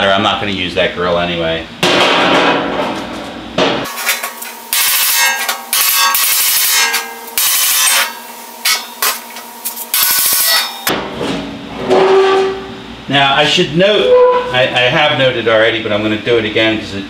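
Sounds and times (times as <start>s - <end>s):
metal panel ringing: 1.8s - 3.9s
tool striking sheet metal: 1.8s - 12.6s
metallic scraping: 3.8s - 10.9s, 14.0s - 14.8s.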